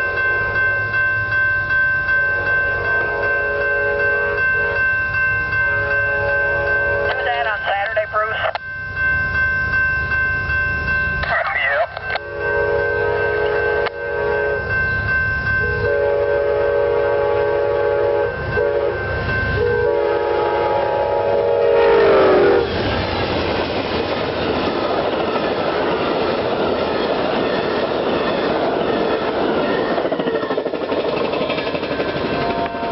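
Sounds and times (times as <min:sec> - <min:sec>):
train horn blasts: 0:02.3 - 0:04.9, 0:05.7 - 0:07.2, 0:12.0 - 0:15.0, 0:15.6 - 0:22.8, 0:32.3 - 0:32.9
train cars rolling clickety-clack: 0:22.6 - 0:32.9.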